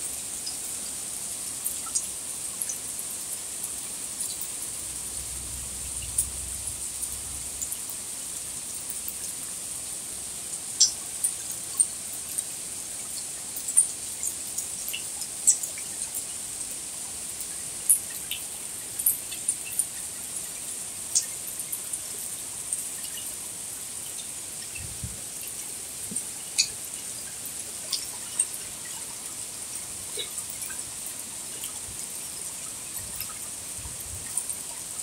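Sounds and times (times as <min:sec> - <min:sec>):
steady high-pitched rain hiss: 0:00.0 - 0:35.0
raindrops ticking: 0:04.2 - 0:07.9, 0:10.7 - 0:12.4, 0:13.1 - 0:16.3, 0:17.3 - 0:23.3, 0:24.0 - 0:33.5.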